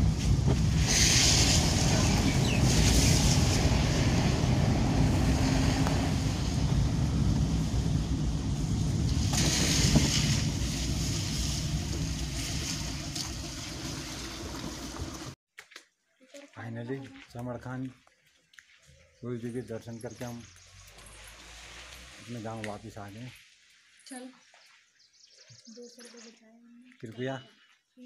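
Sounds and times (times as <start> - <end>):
car engine rumble: 0.0 - 15.4
rain: 0.0 - 15.4, 20.8 - 23.4
tyres on wet road: 0.0 - 15.4, 19.6 - 23.4
wind: 0.0 - 28.0.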